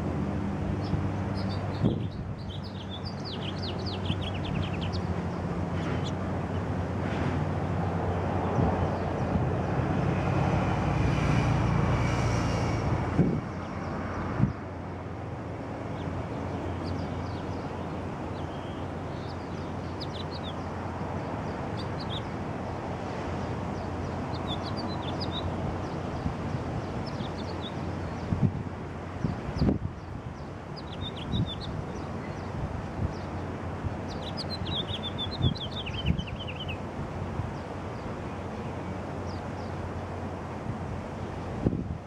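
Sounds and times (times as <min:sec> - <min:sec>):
small birds chirping: 0:00.7 - 0:06.8, 0:15.8 - 0:22.4, 0:23.6 - 0:28.4, 0:29.1 - 0:36.9, 0:37.5 - 0:39.9.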